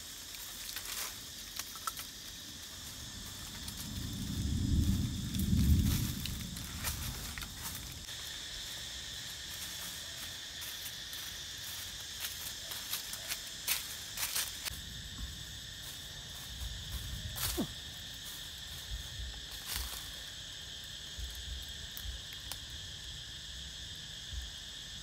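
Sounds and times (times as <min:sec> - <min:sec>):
high insect chorus buzzing: 0:00.0 - 0:25.0
sharp clicks and snaps: 0:01.6 - 0:02.1.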